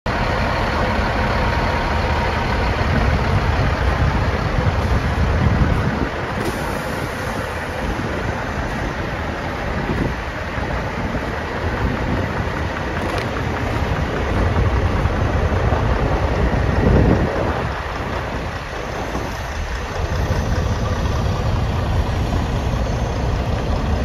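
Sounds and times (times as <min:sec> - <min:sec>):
diesel truck engine idling: 0:00.1 - 0:24.0.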